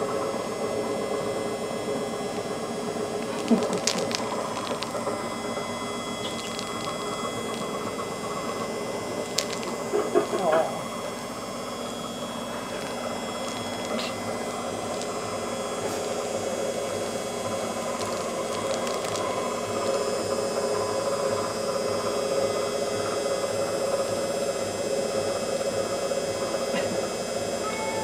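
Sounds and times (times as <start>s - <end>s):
mechanical hum with low pulse: 0.0s - 28.0s.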